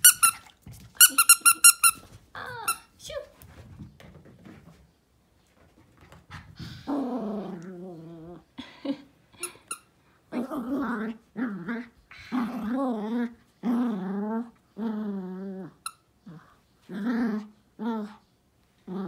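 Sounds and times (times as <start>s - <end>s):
dog growling: 6.7s - 8.6s, 10.3s - 18.2s.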